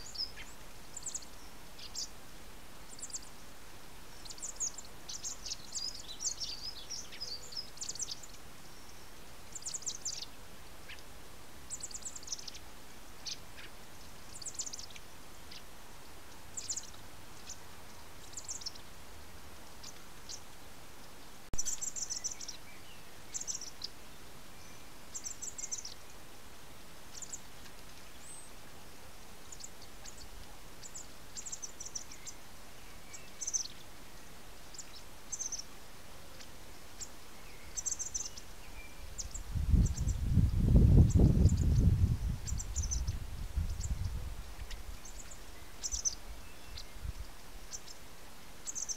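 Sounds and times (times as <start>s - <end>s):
faint steady hiss: 0.0s - 48.9s
bird fledgling begging calls: 37.6s - 47.0s.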